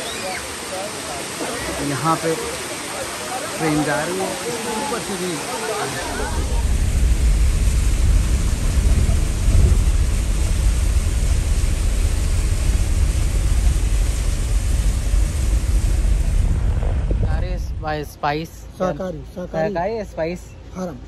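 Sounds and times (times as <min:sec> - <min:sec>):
steady hiss: 0:00.0 - 0:20.5
vehicle engine and road rumble: 0:06.0 - 0:21.0.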